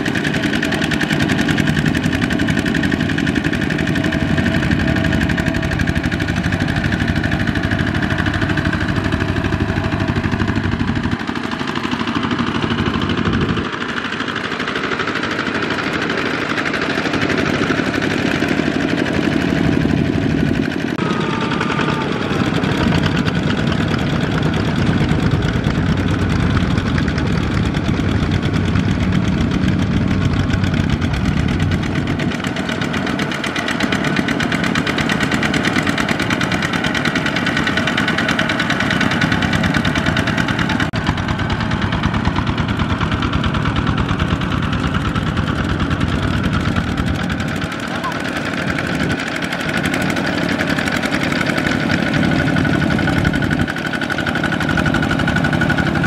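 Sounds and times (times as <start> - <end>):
diesel tractor engine under load: 0.0 - 56.0.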